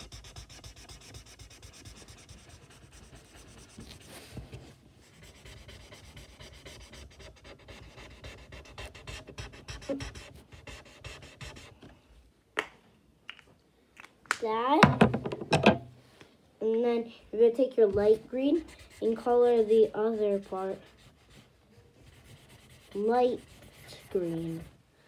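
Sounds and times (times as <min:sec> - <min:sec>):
pencil scratching on paper: 0:00.0 - 0:11.8, 0:18.0 - 0:24.8.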